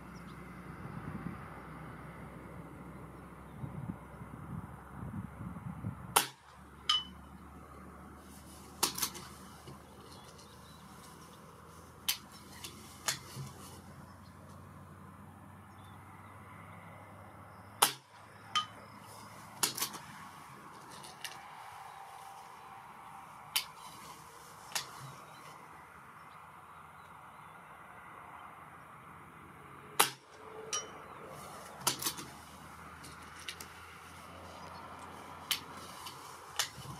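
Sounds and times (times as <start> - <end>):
wind rumbling on microphone: 0.1 - 6.2, 30.8 - 36.9
pellet pinging on steel target: 6.2 - 7.2, 17.8 - 18.8, 30.0 - 31.0
air rifle shots: 17.8 - 18.2.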